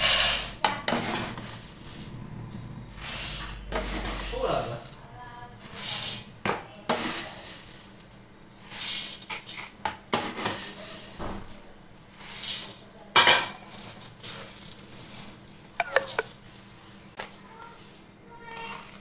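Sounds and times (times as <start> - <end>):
scoop clinking on steel: 15.8 - 16.3.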